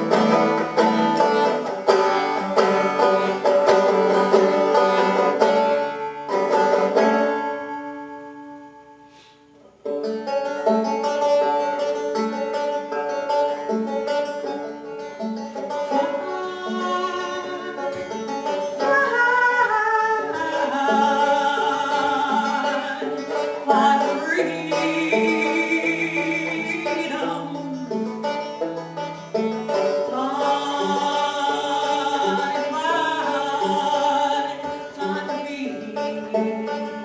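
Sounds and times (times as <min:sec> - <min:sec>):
banjo picking: 0:00.0 - 0:37.0
woman singing: 0:15.8 - 0:18.2, 0:18.8 - 0:28.1, 0:30.0 - 0:37.0.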